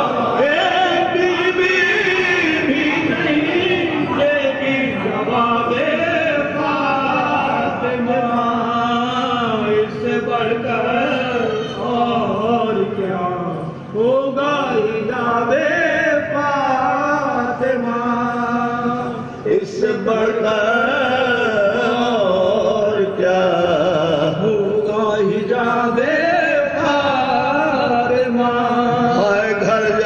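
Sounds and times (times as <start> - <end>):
men chanting: 0.0 - 30.0.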